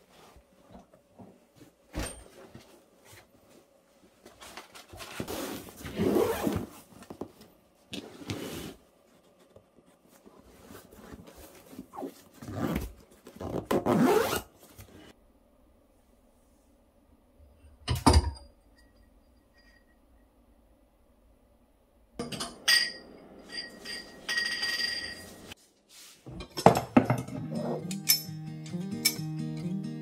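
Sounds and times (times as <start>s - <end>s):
zipper being pulled shut: 5.3s - 6.7s, 11.9s - 14.5s.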